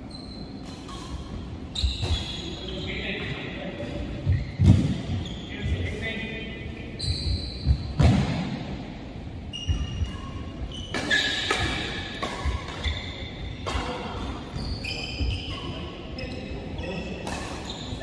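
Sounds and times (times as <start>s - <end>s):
shoes squeaking on court: 0.0s - 6.0s, 6.8s - 8.0s, 9.4s - 18.0s
racket striking shuttlecock: 10.9s - 12.9s.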